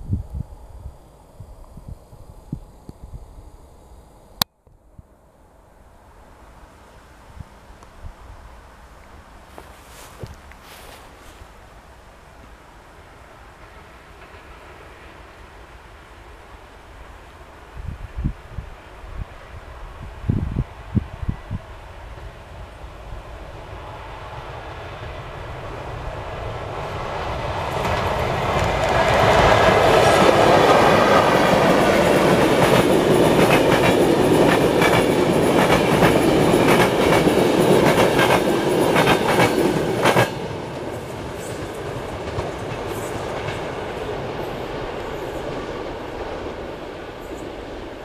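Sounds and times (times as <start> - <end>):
train passing at speed: 5.4 - 48.0
wheels clattering on rails: 27.6 - 47.7.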